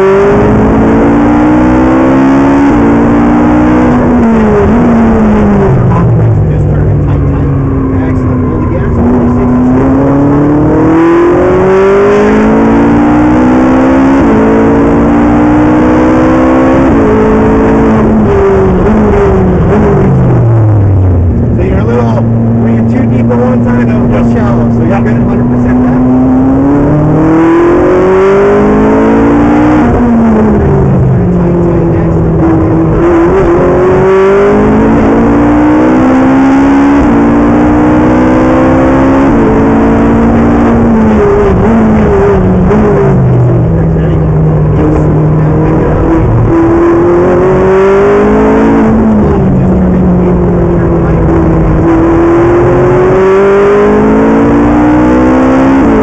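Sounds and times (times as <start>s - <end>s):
car engine accelerating hard: 0.0s - 56.0s.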